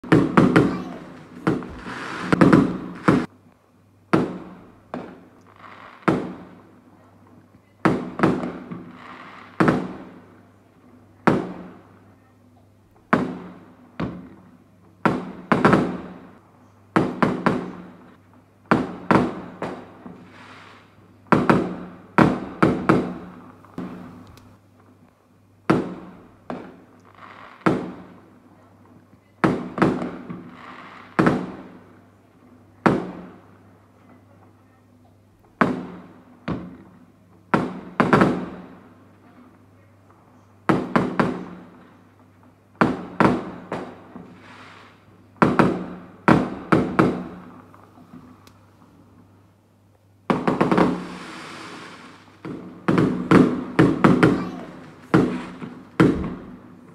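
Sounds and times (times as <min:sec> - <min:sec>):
fireworks bangs echoing: 0:00.0 - 0:03.3, 0:04.1 - 0:06.6, 0:07.8 - 0:10.4, 0:13.1 - 0:16.4, 0:17.0 - 0:24.2, 0:25.7 - 0:28.3, 0:29.4 - 0:32.0, 0:32.8 - 0:33.7, 0:35.6 - 0:39.0, 0:40.7 - 0:41.8, 0:42.7 - 0:48.4, 0:50.3 - 0:56.9.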